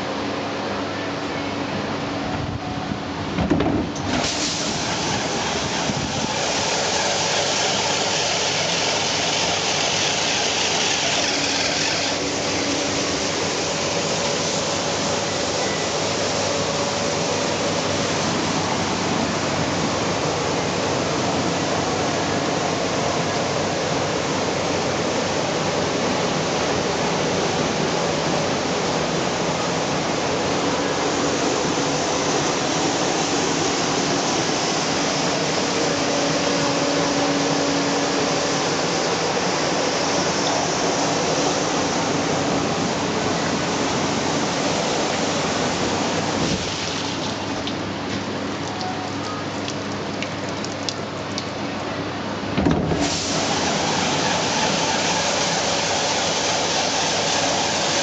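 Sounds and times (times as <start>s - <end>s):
water spraying inside dishwasher: 4.1s - 19.1s, 43.6s - 48.9s, 52.6s - 58.0s
dishwasher hood clunking shut: 52.6s - 53.1s.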